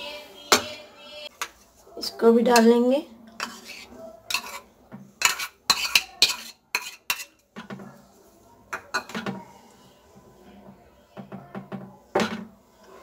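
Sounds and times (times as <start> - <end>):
spoon scraping plastic bowl: 3.4 - 7.4.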